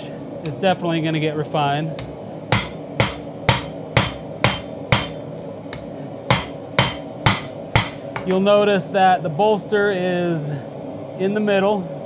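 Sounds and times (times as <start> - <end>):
hammer blows on anvil: 2.5 - 8.4.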